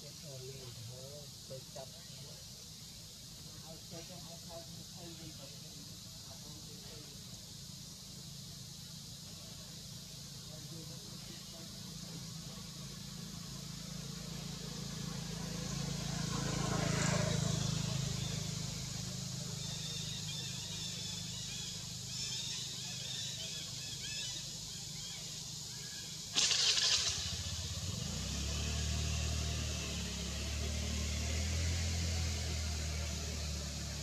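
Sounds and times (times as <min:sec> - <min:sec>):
engine humming: 0:00.0 - 0:34.0.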